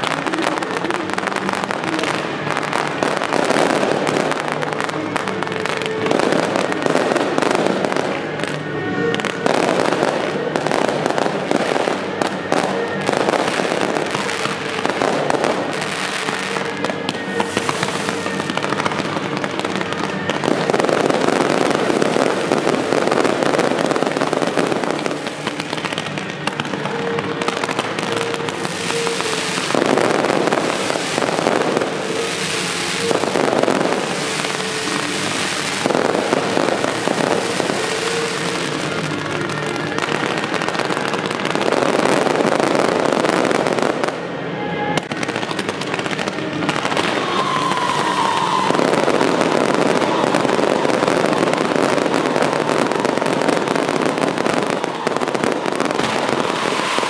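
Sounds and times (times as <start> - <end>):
fireworks crackling and popping: 0.0 - 57.0
fireworks launching and bursting: 0.0 - 57.0.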